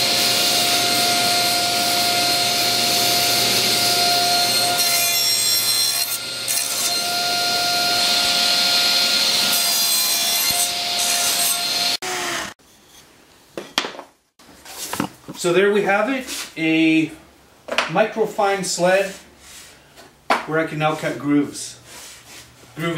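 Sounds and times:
table saw cutting wood: 0.0 - 12.6.

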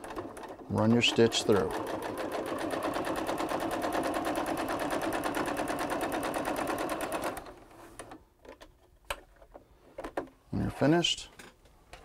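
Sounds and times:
electric sewing machine stitching: 0.0 - 8.2.

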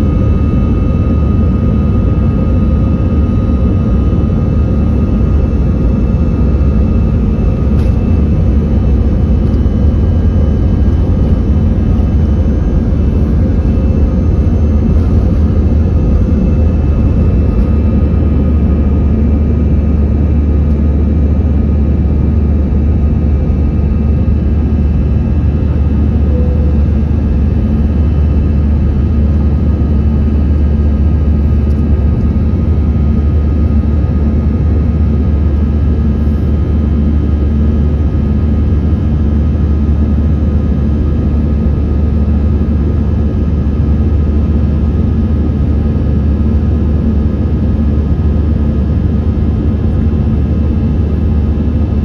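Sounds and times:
jet engines roaring: 0.0 - 38.2.

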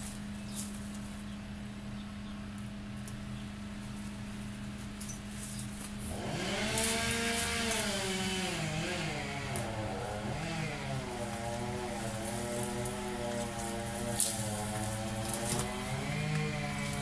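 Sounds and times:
chainsaw revving: 6.1 - 17.0.

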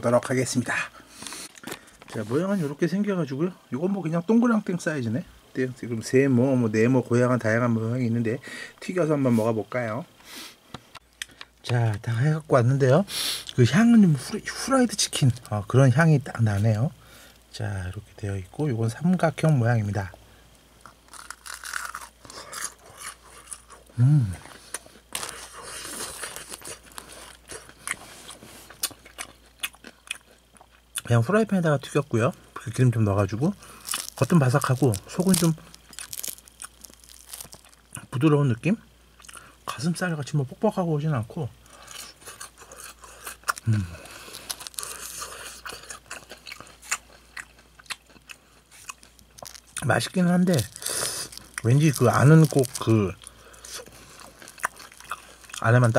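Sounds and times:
crunching and chewing food: 0.1 - 2.6, 13.2 - 17.5, 20.8 - 38.4, 39.0 - 39.8, 41.6 - 55.9
person humming: 23.9 - 24.5, 43.6 - 44.0.

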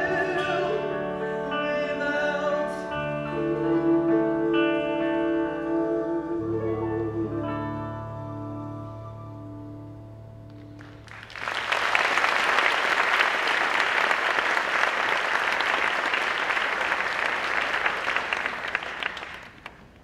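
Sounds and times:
held music notes: 0.0 - 11.1
audience applauding: 10.6 - 20.0.

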